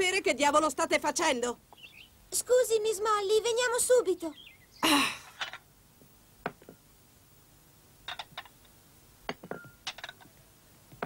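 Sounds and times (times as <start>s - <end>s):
plates clinking on a table: 9.3s - 10.3s.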